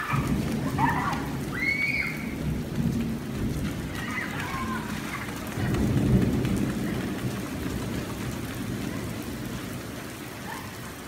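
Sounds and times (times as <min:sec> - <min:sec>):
faint children shouting: 0:00.0 - 0:02.4, 0:03.9 - 0:05.9
rain on wet pavement: 0:00.0 - 0:11.0.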